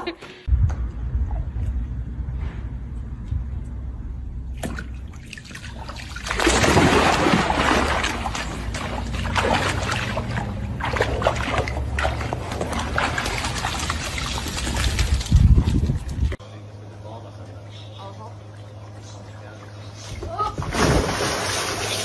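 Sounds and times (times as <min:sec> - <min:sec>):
dog splashing in pool: 0:04.6 - 0:16.1, 0:20.6 - 0:22.0.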